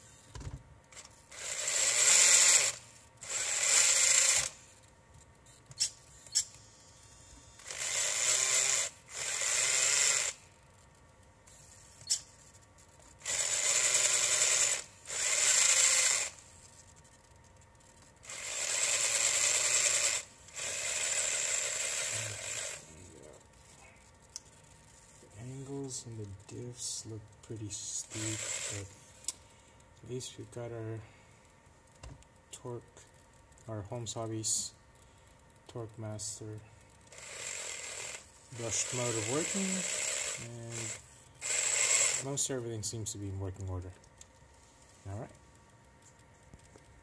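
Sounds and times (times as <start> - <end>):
motor whirring gear whine: 0.0 - 4.7, 5.7 - 10.5, 13.2 - 16.4, 18.2 - 22.9, 37.1 - 42.5.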